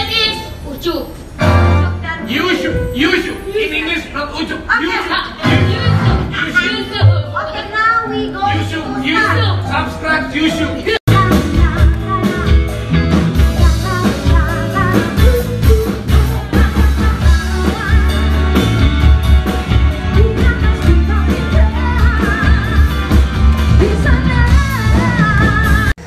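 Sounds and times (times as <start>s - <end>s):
upbeat song with singing: 10.5s - 26.0s.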